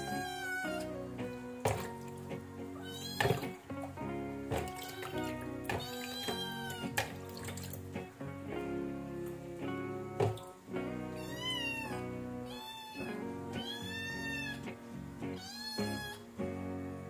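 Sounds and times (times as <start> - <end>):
kitten meowing: 0.0 - 1.0, 2.8 - 3.5, 4.8 - 7.0, 11.1 - 14.6, 15.4 - 16.3
guitar music: 0.0 - 17.0.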